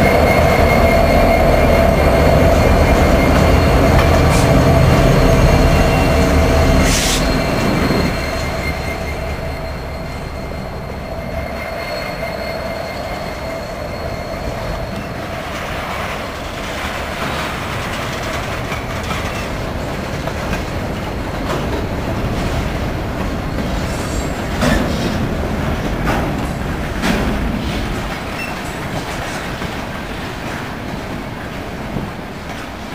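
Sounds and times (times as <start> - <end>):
diesel locomotive rumble: 0.0 - 12.1
wheel squeal: 0.0 - 29.8
train wheels rumbling: 0.0 - 32.9
wheels clacking over rail joints: 14.6 - 32.9.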